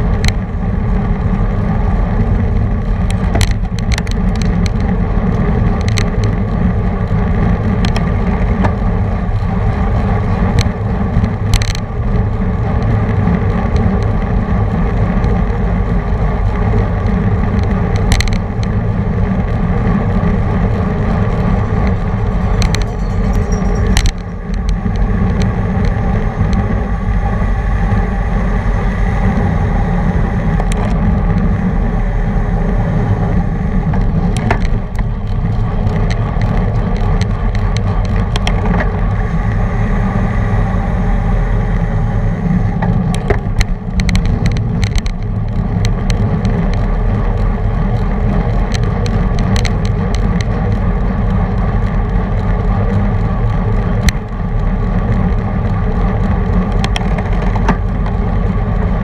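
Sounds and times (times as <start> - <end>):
road noise: 0.0 - 59.0
wind rumble: 0.0 - 59.0
sharp clicks and knocks: 0.1 - 0.4, 2.8 - 6.6, 7.6 - 9.5, 10.4 - 11.9, 17.0 - 18.8, 20.6 - 26.8, 33.8 - 39.2, 42.8 - 58.3.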